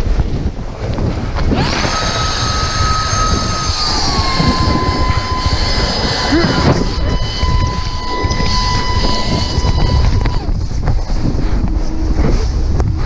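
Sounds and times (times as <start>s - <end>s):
avalanche snow rushing: 0.0s - 13.0s
wind buffeting microphone: 0.0s - 13.0s
steady high whistle: 1.6s - 10.7s.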